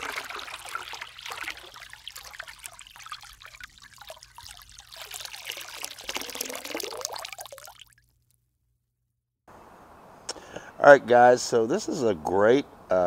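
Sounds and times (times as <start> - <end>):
water splashing and trickling: 0.0 - 8.2.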